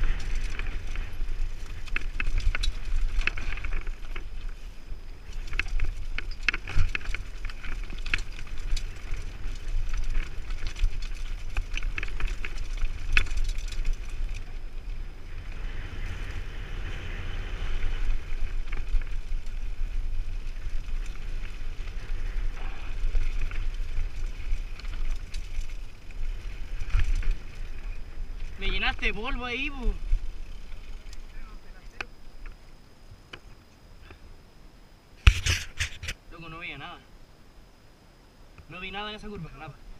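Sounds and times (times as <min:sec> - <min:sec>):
bike clattering over rocks: 0:00.0 - 0:04.4, 0:05.3 - 0:14.6
wind rumble on microphone: 0:00.0 - 0:33.6.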